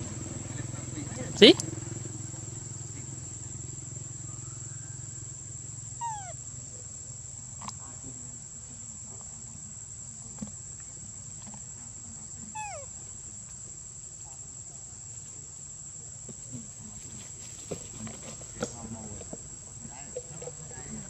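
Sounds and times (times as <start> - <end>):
high-pitched insect drone: 0.0 - 7.1
animal falling call: 6.0 - 6.4.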